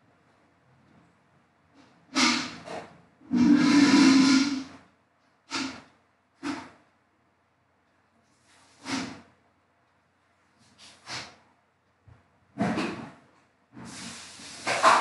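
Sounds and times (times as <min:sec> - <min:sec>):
puffs of breath into microphone: 0:10.8 - 0:11.4, 0:13.8 - 0:15.0.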